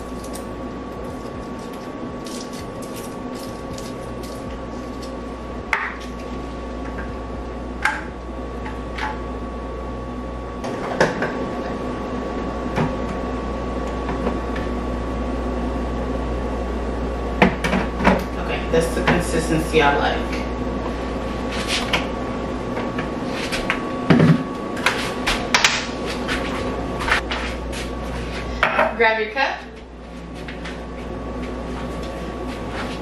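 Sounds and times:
machine hum: 0.0 - 33.0.

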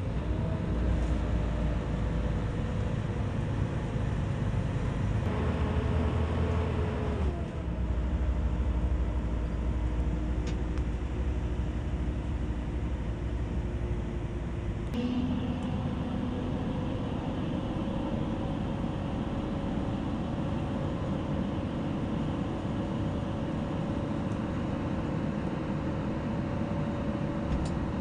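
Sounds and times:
low rumble of truck on rough road: 0.0 - 28.0
truck engine drone: 0.0 - 28.0.

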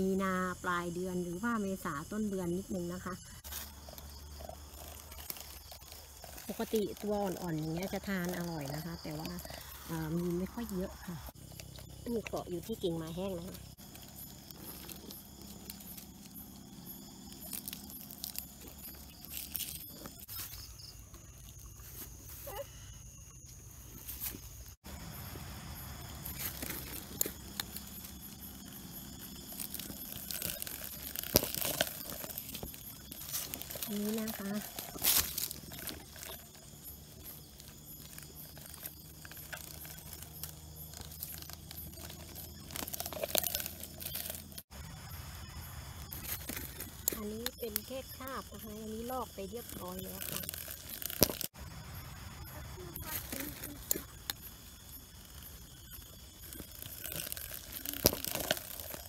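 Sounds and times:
night insects chorus: 0.0 - 59.0
rustling of dry leaves and twigs: 2.7 - 59.0
plastic cup crinkling: 3.4 - 20.7, 26.0 - 44.7, 46.1 - 51.6, 55.1 - 59.0.

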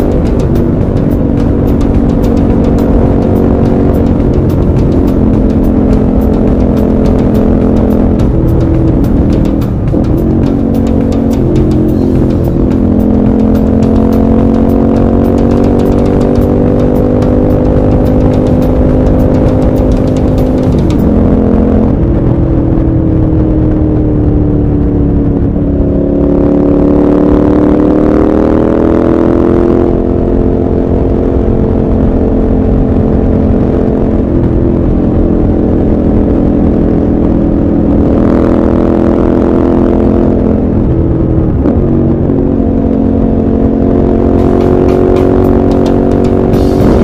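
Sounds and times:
motorcycle engine accelerating: 0.0 - 47.0
wind and road noise: 0.0 - 47.0.

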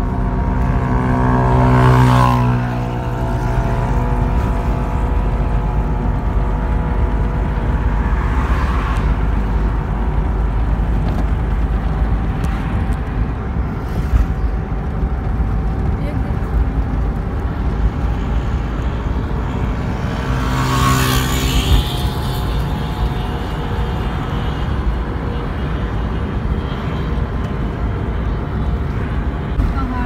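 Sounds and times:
car engine drone and road noise: 0.0 - 30.0
passing traffic: 0.0 - 30.0.

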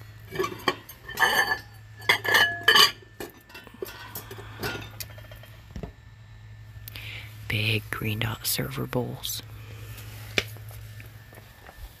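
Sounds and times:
bowls clinking and rattling: 0.3 - 5.5.

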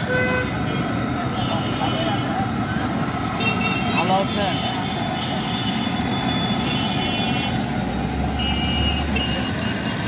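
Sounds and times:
vehicle engines running: 0.0 - 10.0
oil sizzling in a wok: 4.8 - 10.0.

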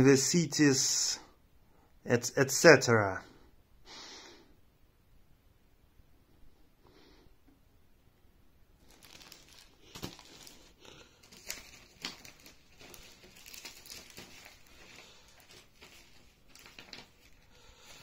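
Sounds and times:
paper rustling: 8.8 - 18.0.

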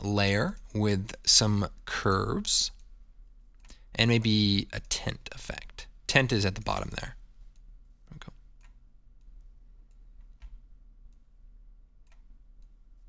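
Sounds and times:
computer mouse clicks: 7.5 - 11.3, 12.0 - 13.0.

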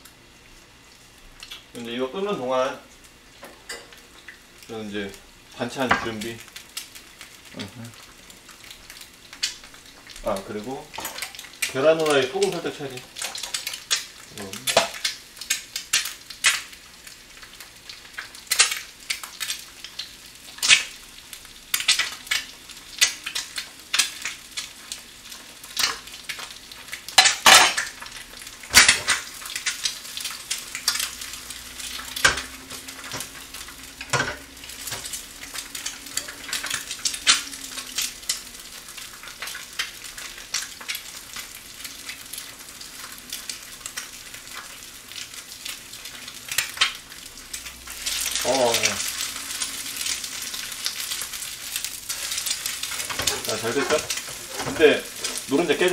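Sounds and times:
egg sizzling in pan: 0.0 - 55.9
dishes and utensils clinking: 53.0 - 55.4.

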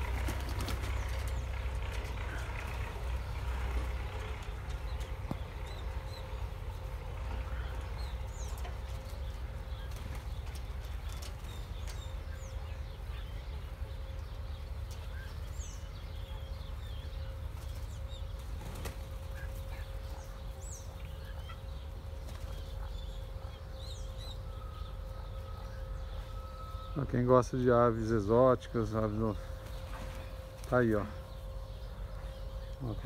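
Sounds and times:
faint constant hum: 0.0 - 33.0.

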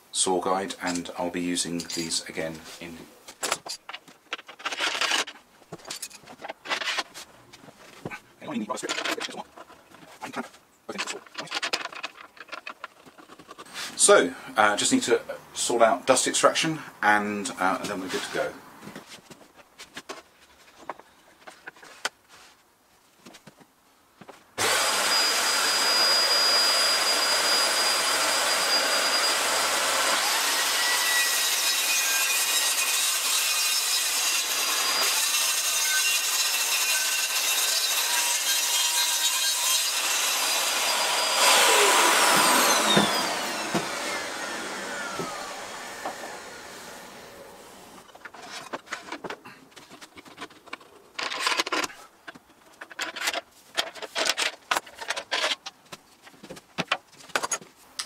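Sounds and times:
circular saw cutting panel: 24.6 - 48.7.

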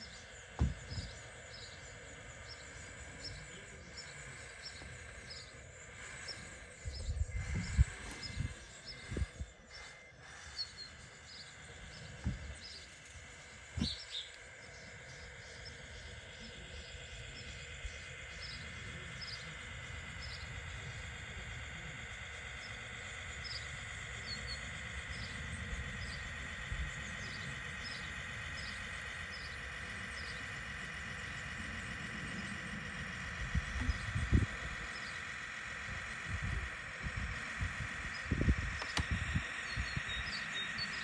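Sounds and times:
toy truck electric motor whine: 0.0 - 41.0.

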